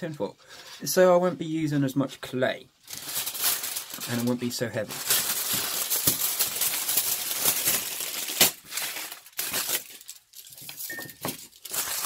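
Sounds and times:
aluminium foil crumpling: 2.8s - 12.0s.

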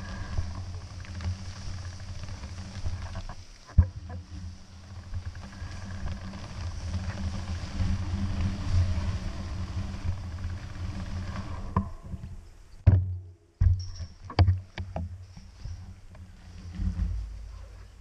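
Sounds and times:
faint hiss: 0.0s - 12.8s
wind buffeting microphone: 0.0s - 12.8s.

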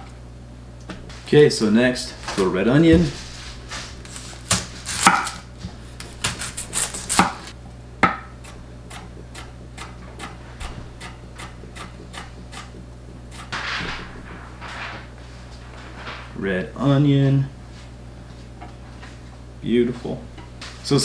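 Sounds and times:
knife cutting on wooden board: 4.0s - 10.4s.

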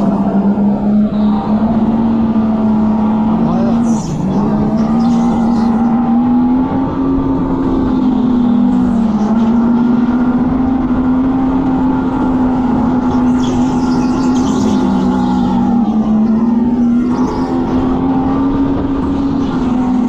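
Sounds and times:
electric go-kart droning: 0.0s - 20.0s.

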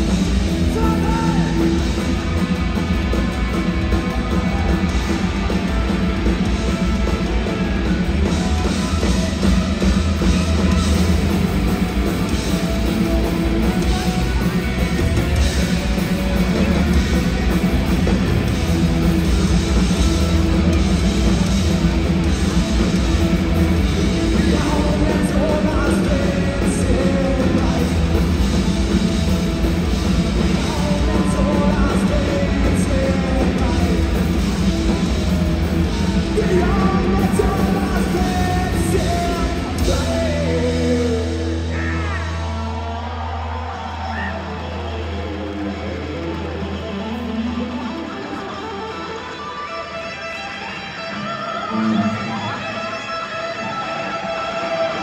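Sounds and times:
punk rock band playing: 0.0s - 55.0s.

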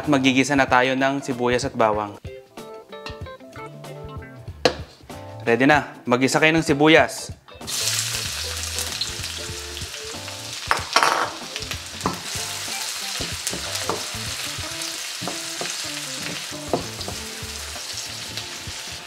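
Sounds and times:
onions sizzling in hot oil: 7.6s - 19.0s.

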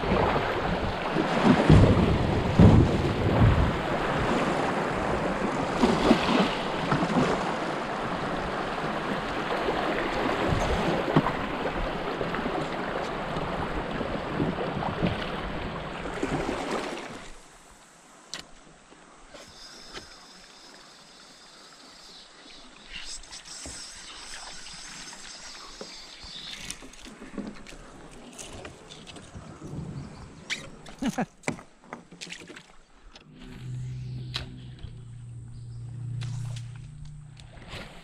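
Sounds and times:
water rushing around a kayak: 0.0s - 34.1s
quiet calm water: 0.0s - 38.0s
low thumps: 1.6s - 3.9s, 33.2s - 38.0s.

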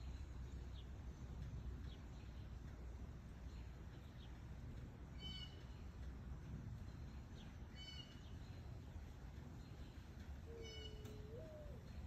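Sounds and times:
light rain falling: 0.0s - 12.0s
high-pitched bird calls: 9.8s - 12.0s.

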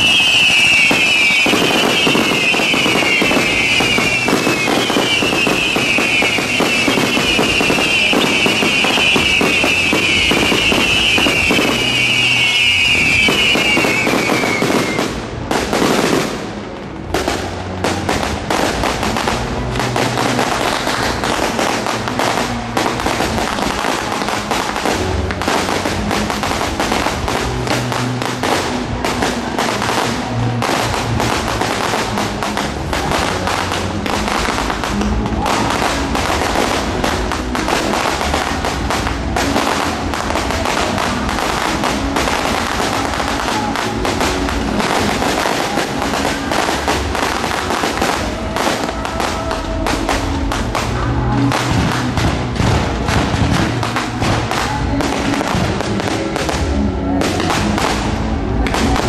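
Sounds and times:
firework falling whistle: 0.0s - 15.2s
fireworks crackling: 0.0s - 59.0s.

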